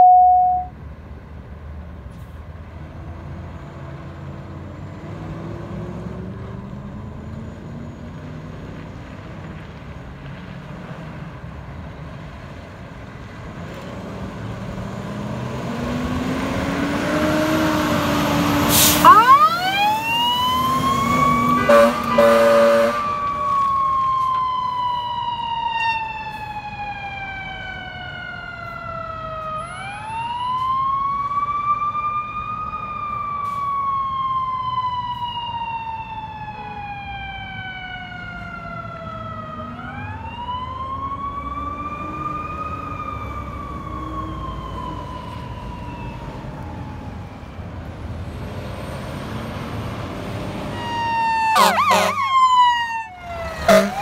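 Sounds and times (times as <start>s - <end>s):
siren wailing: 0.0s - 0.7s, 16.8s - 47.6s, 50.7s - 54.0s
diesel engine revving: 2.8s - 9.4s, 13.4s - 24.1s, 47.9s - 52.3s, 53.2s - 54.0s
truck horn honks: 21.5s - 23.1s, 51.6s - 52.3s, 53.6s - 54.0s.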